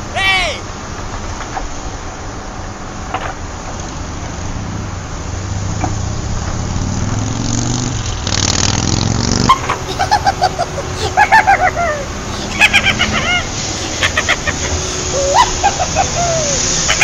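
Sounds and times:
low traffic rumble: 0.0 - 17.0
vehicle engine accelerating: 3.8 - 17.0.

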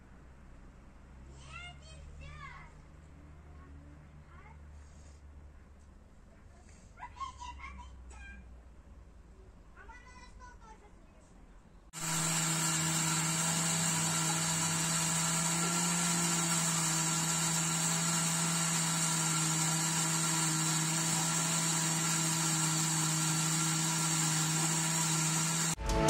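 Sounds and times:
electric motor humming and whining: 12.0 - 25.8.

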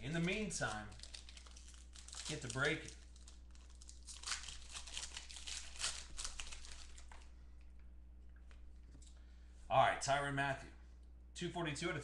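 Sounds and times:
plastic wrapper crinkling: 0.0 - 7.3
steady low hum: 0.0 - 12.0.

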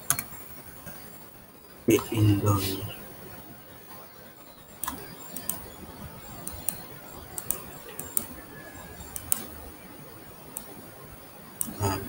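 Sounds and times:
faint steady hiss: 0.0 - 12.0
computer mouse clicking: 4.8 - 9.6, 10.5 - 10.7.

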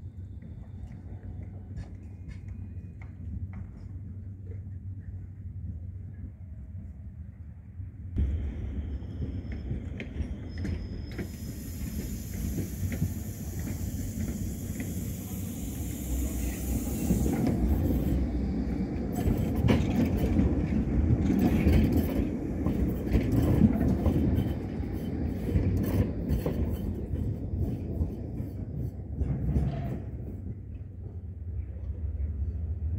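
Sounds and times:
tram rumbling past: 0.0 - 32.9
high hiss: 11.2 - 18.2.

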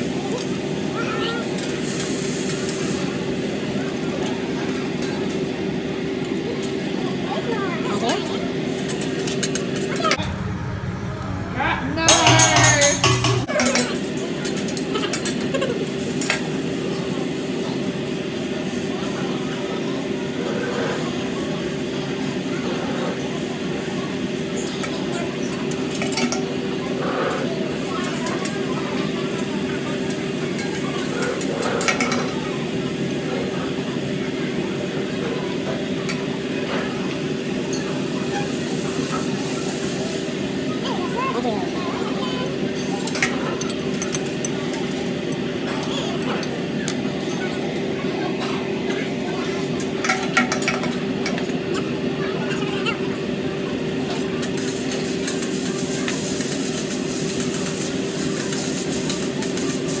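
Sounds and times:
noodles sizzling on a griddle: 0.1 - 5.7, 36.8 - 43.3, 54.1 - 60.0
food sizzling on griddle: 1.0 - 3.0, 54.5 - 60.0
steady hum: 9.0 - 13.7
metal spatula scraping and tapping: 12.1 - 13.5.

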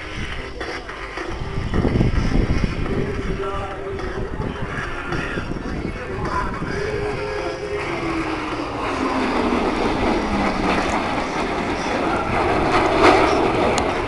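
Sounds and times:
jets roaring past: 4.0 - 14.0.

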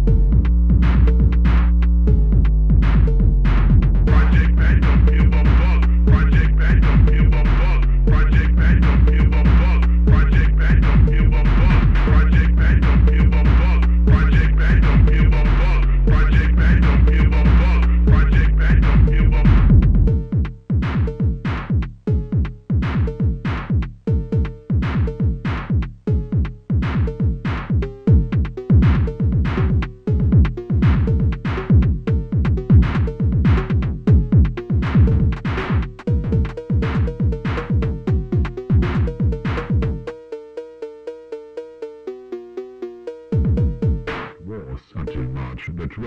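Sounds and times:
cowbell melody: 0.0 - 1.5, 3.0 - 44.4
heavy sliding bass hits: 0.0 - 20.2.

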